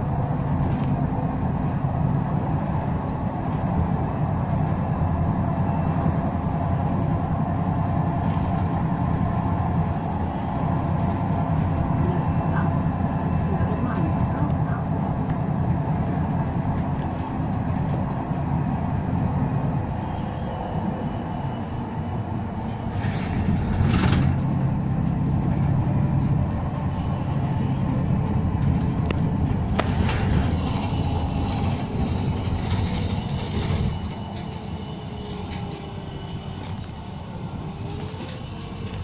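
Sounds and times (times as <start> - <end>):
bus engine hum: 0.0 - 39.0
road noise: 0.0 - 39.0.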